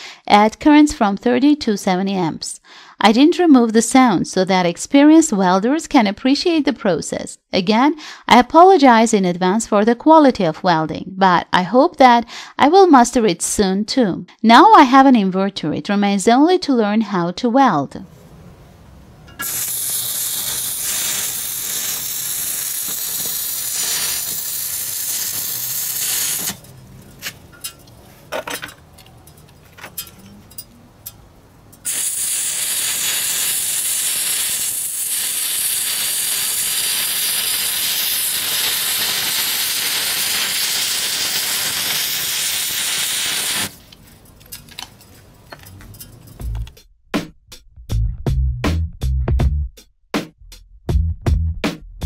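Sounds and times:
welding arc hissing: 0:19.4 - 0:27.5, 0:31.8 - 0:44.0
scattered welding clicks: 0:19.4 - 0:28.0, 0:28.6 - 0:46.8.

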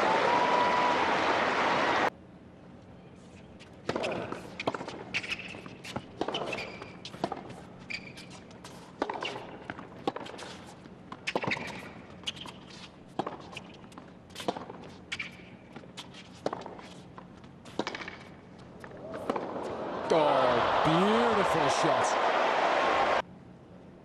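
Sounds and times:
tennis ball bouncing on court: 0:03.8 - 0:19.6
tennis ball struck by rackets: 0:08.7 - 0:10.4, 0:17.7 - 0:19.6.

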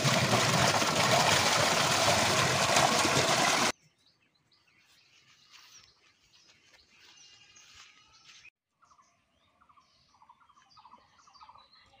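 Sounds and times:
faint birdsong: 0:03.7 - 0:12.0.

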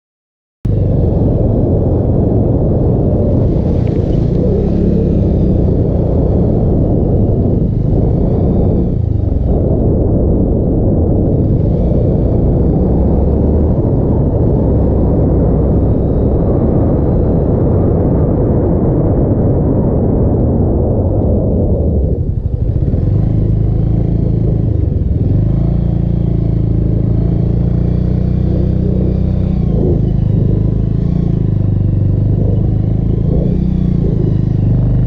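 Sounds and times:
motorcycle engine running: 0:00.7 - 0:18.4, 0:20.7 - 0:35.0
wind rumble on camera: 0:00.7 - 0:35.0
motorcycle riding through water: 0:01.3 - 0:06.8.

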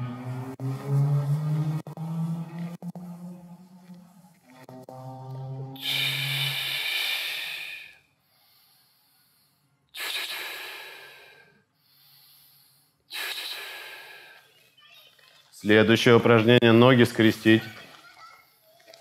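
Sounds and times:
man breathing heavily: 0:05.8 - 0:14.6.

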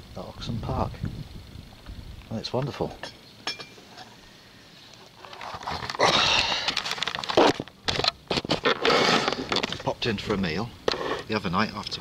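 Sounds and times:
camera handling noise: 0:06.6 - 0:09.8.

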